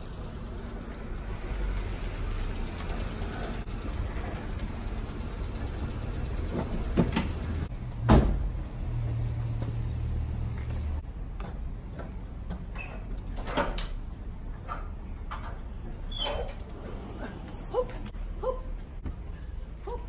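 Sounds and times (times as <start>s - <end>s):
small truck engine humming: 0.0s - 20.0s.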